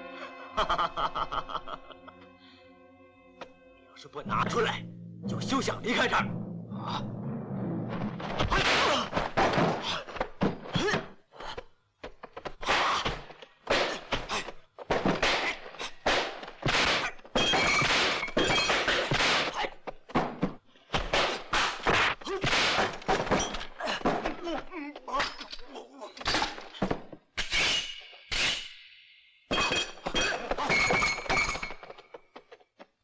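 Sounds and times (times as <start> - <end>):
punch and kick impacts: 8.0 - 11.1, 12.6 - 24.5.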